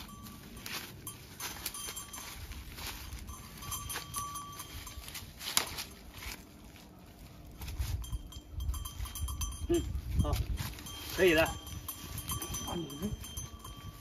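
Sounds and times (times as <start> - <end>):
hooves scuffing on dry leaves: 0.0 - 14.0.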